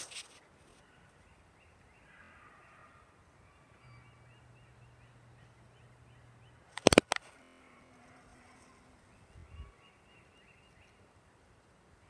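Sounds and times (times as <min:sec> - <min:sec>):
faint bird chirps: 0:00.7 - 0:07.0, 0:08.4 - 0:11.2.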